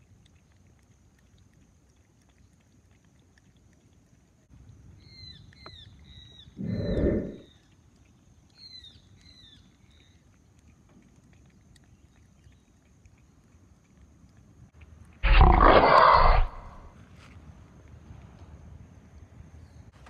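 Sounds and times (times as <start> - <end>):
cat licking plastic: 0.0 - 4.5, 7.5 - 15.2.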